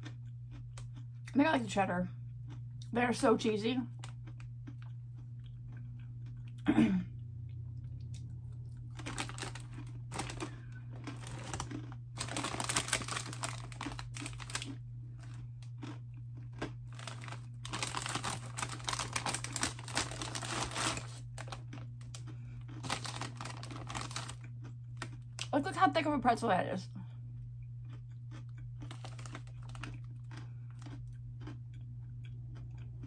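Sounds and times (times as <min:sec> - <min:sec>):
crunchy snack chewing: 0:00.0 - 0:01.4, 0:03.9 - 0:06.6, 0:07.6 - 0:25.5, 0:27.3 - 0:33.0
steady low hum: 0:00.0 - 0:33.0
foil snack bag crinkling: 0:08.8 - 0:25.8, 0:28.8 - 0:31.5.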